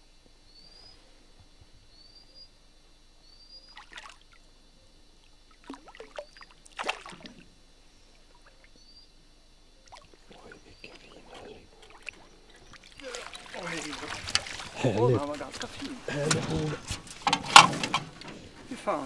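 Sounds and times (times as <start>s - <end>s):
fish splashing in water: 3.7s - 4.4s, 5.4s - 7.6s, 9.8s - 17.2s.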